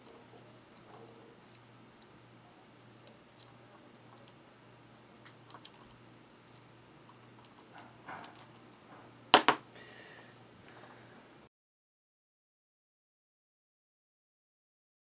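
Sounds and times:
faint low hum: 0.0s - 11.5s.

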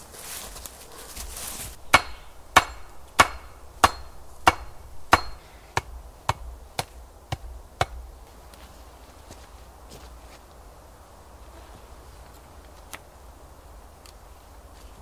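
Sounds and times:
tool striking wood: 1.8s - 8.0s.

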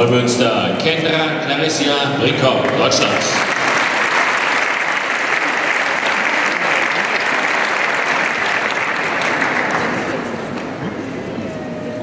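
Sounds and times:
large audience applauding: 2.7s - 11.2s.

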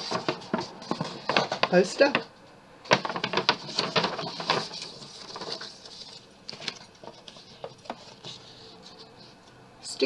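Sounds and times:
paper and card rustling: 0.0s - 2.3s, 2.9s - 9.4s.

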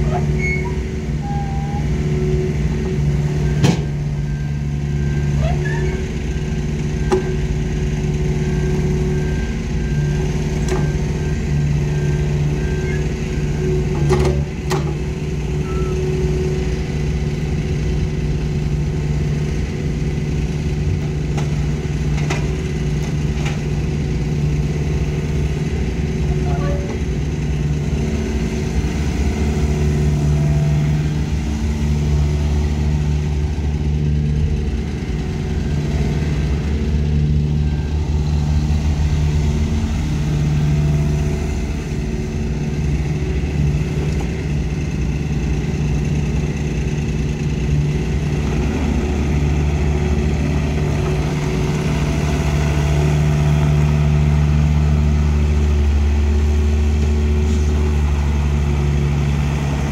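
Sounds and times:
excavator diesel engine working: 0.0s - 59.9s.

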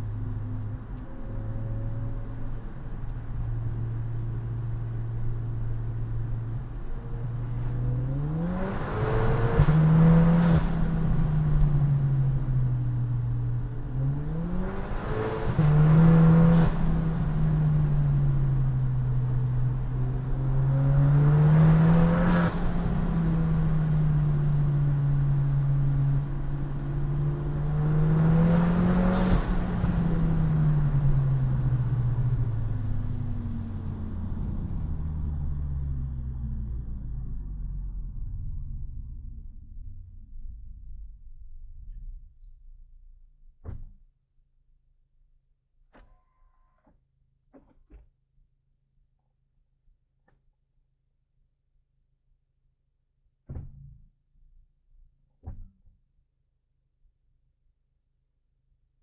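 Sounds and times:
car engine accelerating: 0.0s - 42.6s.

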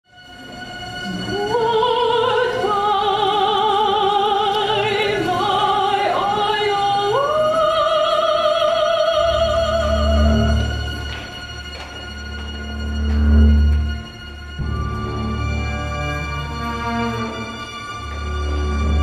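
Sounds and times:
operatic soprano voices singing: 1.1s - 10.9s.

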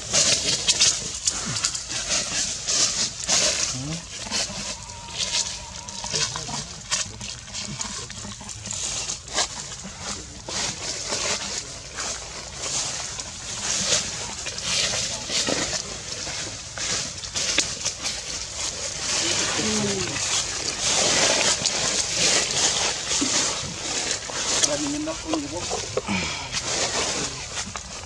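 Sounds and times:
crackling rustle: 0.0s - 28.0s
monkey calls: 4.1s - 6.7s.

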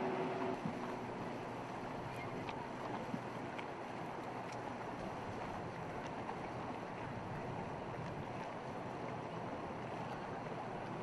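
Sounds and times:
outboard motor running: 0.0s - 3.5s.

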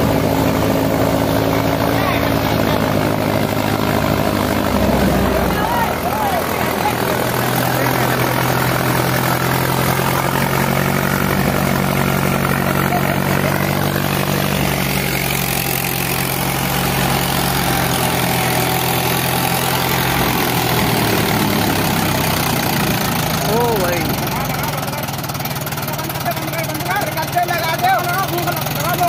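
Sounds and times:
thresher running: 0.0s - 29.0s
tractor diesel engine running: 0.0s - 29.0s.

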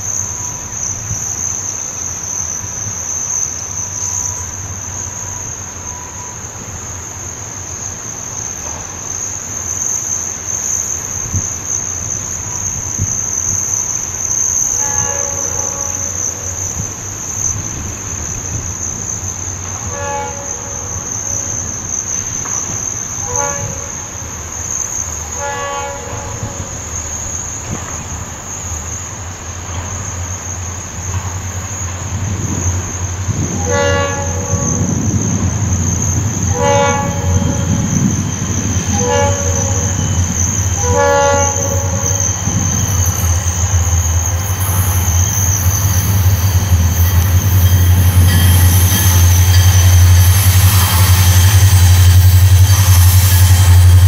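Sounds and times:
insects droning: 0.0s - 54.0s
train rumble: 0.0s - 54.0s
train air horn blasts: 14.8s - 16.2s, 19.8s - 21.1s, 23.2s - 24.2s, 25.3s - 26.8s, 33.5s - 35.2s, 36.2s - 54.0s.

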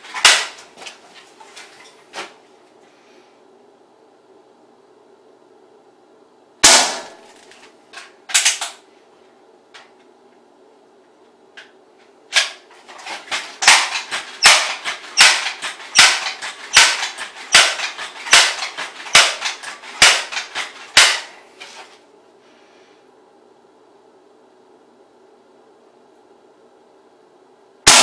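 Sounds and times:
steady low hum: 0.0s - 28.0s
pellet gun shots: 0.1s - 0.6s, 6.6s - 7.4s, 13.3s - 21.4s.

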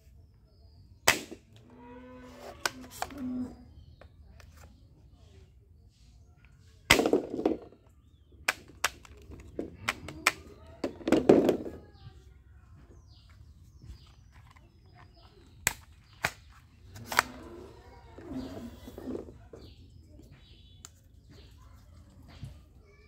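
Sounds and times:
sharp plastic clicks: 8.4s - 10.6s, 14.0s - 17.5s.

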